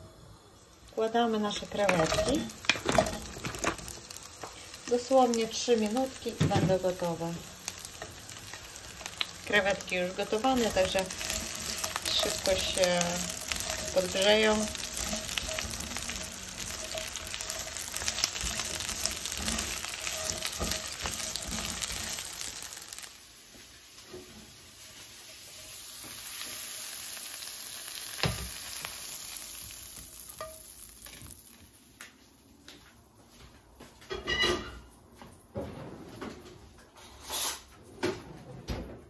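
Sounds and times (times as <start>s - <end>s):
shrimp sizzling in frying pan: 0.8s - 31.8s.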